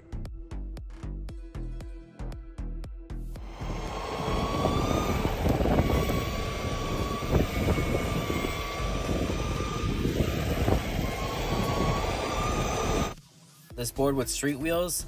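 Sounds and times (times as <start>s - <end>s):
electric motor whining: 3.4s - 13.2s
wheels rolling on asphalt: 3.4s - 13.2s.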